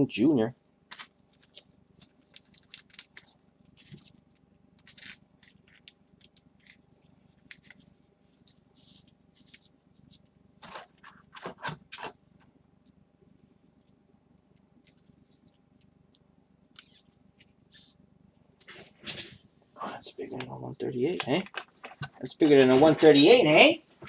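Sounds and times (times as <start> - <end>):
trading card scraping and rustling: 16.8 - 18.0.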